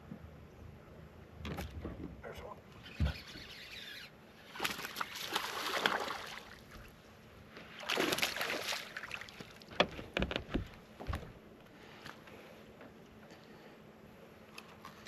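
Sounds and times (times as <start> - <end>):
fish splashing in water: 4.5 - 6.7, 7.8 - 9.6.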